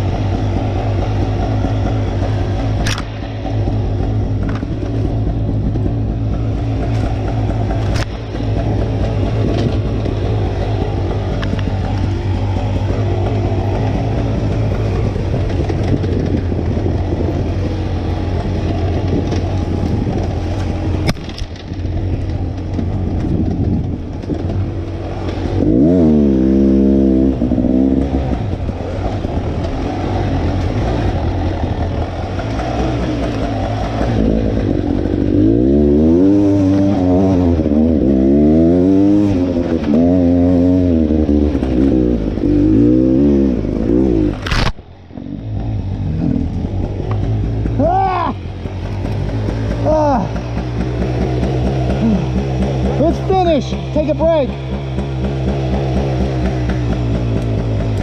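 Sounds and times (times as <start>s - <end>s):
dirt bike engine revving: 22.8s - 58.0s.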